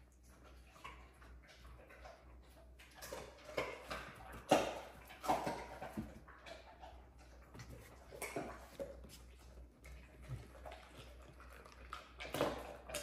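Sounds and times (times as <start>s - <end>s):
pets gnawing chew sticks: 0.2s - 13.0s.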